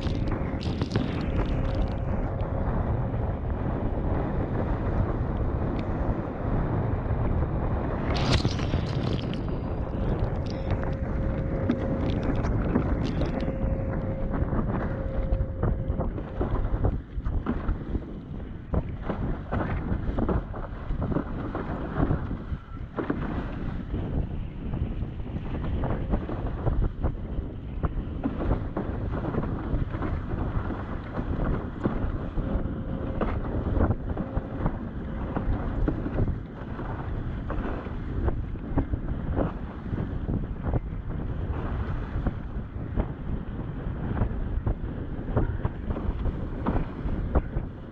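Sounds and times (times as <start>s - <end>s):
water rushing: 0.0s - 2.6s, 8.0s - 16.1s
steady tone: 0.0s - 17.1s, 31.8s - 36.6s
wind buffeting microphone: 0.0s - 47.9s.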